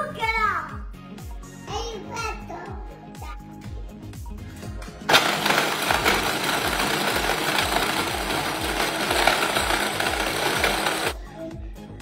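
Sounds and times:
electric chopper grinding ice: 5.1s - 11.2s.

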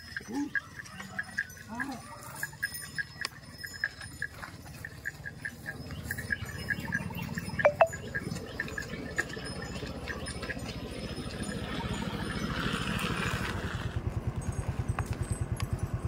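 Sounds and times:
small high clinks: 0.0s - 11.7s.

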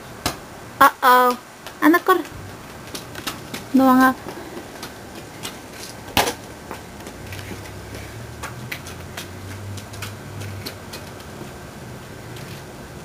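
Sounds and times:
footsteps on concrete: 1.6s - 11.6s
plastic ball on concrete: 1.6s - 11.6s.

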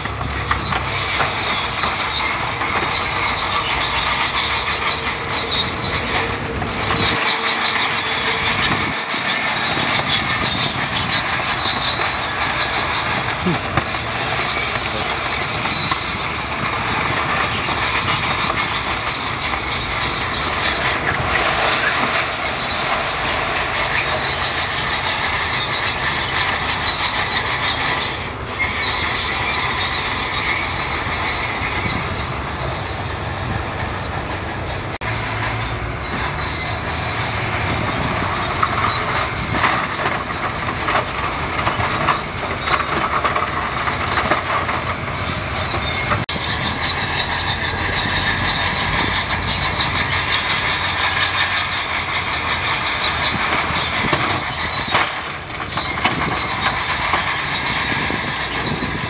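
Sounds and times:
diesel engine running: 0.0s - 59.0s
steel tracks squealing and clanking: 0.0s - 59.0s.

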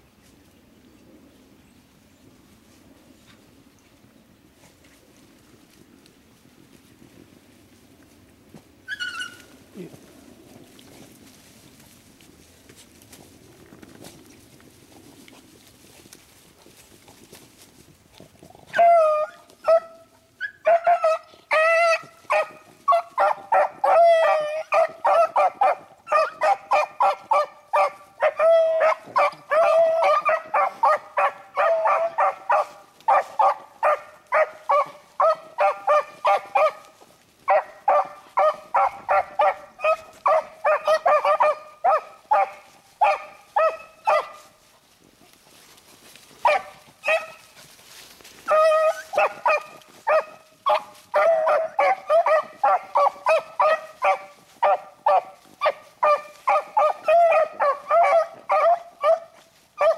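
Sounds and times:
dogs baying: 18.7s - 44.5s, 46.4s - 47.6s, 48.4s - 59.9s.

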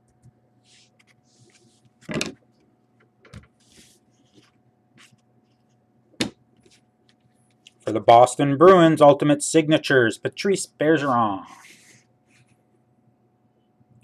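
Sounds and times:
cards sliding and swishing: 0.6s - 1.9s, 11.5s - 12.6s.

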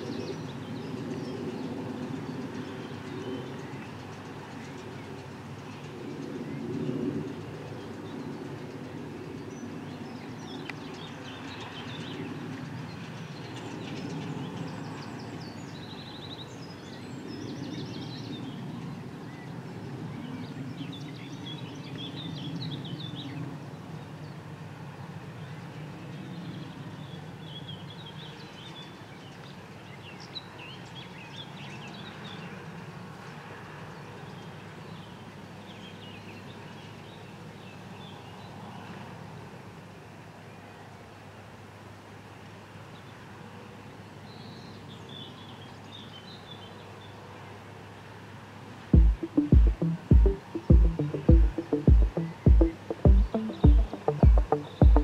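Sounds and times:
birds chirping: 49.0s - 55.0s.

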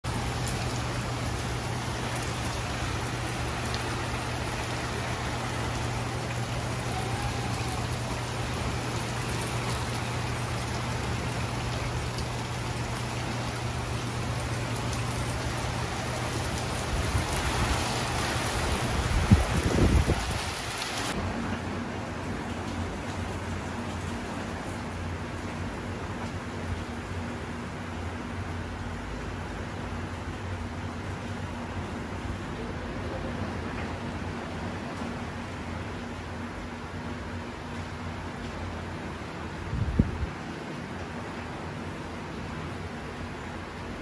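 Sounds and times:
steady rain falling: 0.0s - 44.0s.

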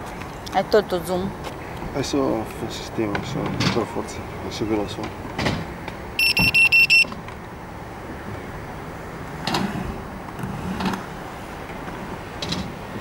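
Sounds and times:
short electronic beeps: 6.2s - 7.1s.

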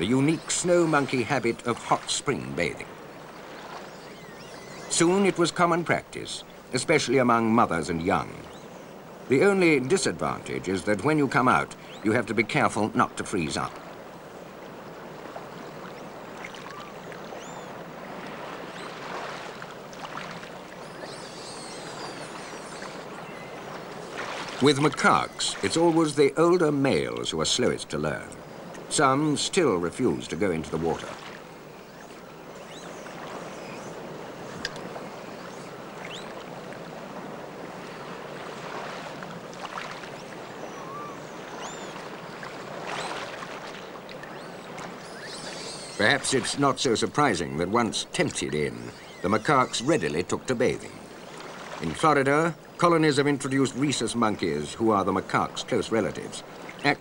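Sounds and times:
faint high chirping calls: 0.0s - 6.6s, 7.3s - 13.7s, 14.8s - 27.2s, 28.1s - 36.9s, 39.7s - 52.7s
flowing water: 0.0s - 57.0s
faint high chirps: 20.8s - 23.6s, 40.1s - 42.0s, 44.2s - 46.2s.

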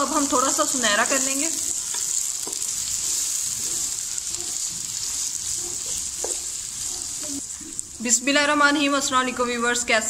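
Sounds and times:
onions sizzling in hot oil: 0.0s - 10.0s
wooden spoon tapping: 1.9s - 2.6s, 6.2s - 6.5s.

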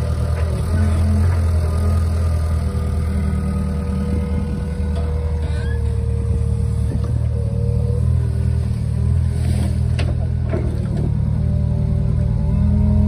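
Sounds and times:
diesel engine running under load: 0.0s - 13.0s
hydraulic whine: 3.3s - 11.4s.

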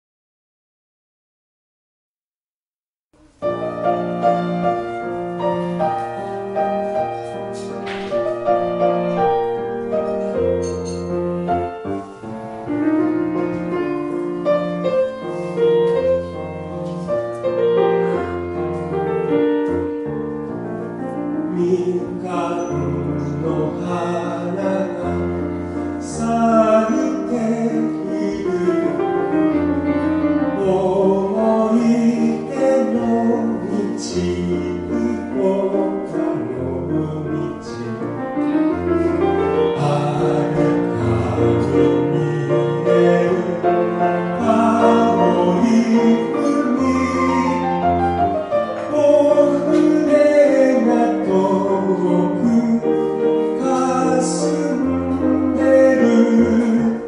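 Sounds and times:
piano playing children's song: 3.2s - 57.0s
man singing: 21.0s - 57.0s.

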